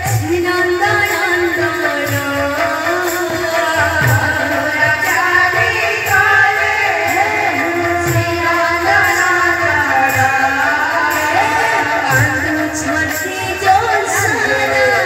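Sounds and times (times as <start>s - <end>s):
hand-played barrel drum: 0.0s - 15.0s
high percussion strokes: 0.0s - 15.0s
woman singing into a microphone: 0.0s - 15.0s.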